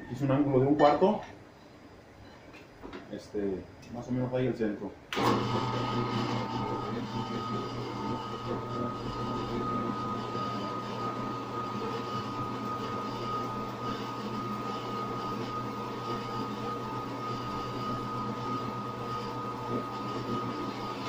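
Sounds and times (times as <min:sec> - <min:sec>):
drill press motor hum: 0:05.1 - 0:21.0.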